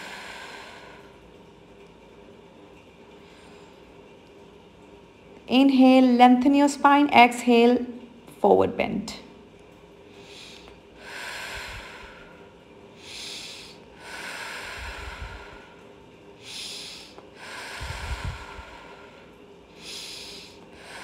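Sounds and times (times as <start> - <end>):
woman breathing deeply: 0.0 - 1.2, 10.1 - 21.0.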